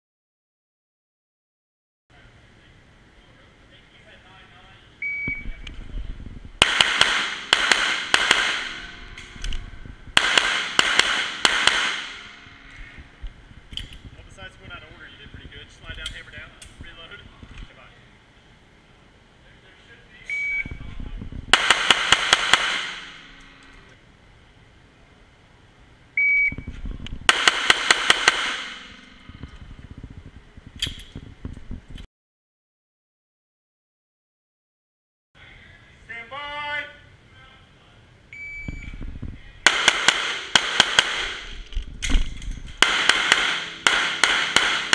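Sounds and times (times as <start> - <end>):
short electronic beep: 5.0 - 5.6, 20.3 - 20.8, 26.2 - 26.7
pistol firing rapid shots: 6.6 - 8.9, 10.2 - 12.3, 21.5 - 23.2, 27.3 - 29.0, 39.6 - 41.5, 42.8 - 44.9.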